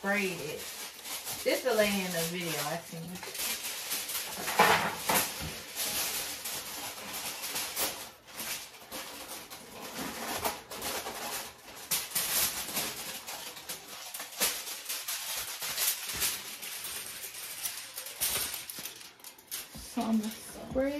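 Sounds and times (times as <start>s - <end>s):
aluminum foil crinkling: 0.0s - 20.9s.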